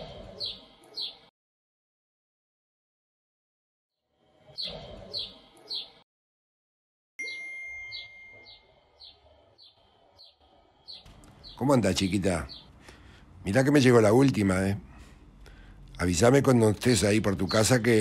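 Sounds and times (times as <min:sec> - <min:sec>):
birds chirping: 0:00.0 - 0:01.3, 0:04.4 - 0:06.0, 0:07.2 - 0:18.0
clear ringing tone: 0:07.2 - 0:08.7.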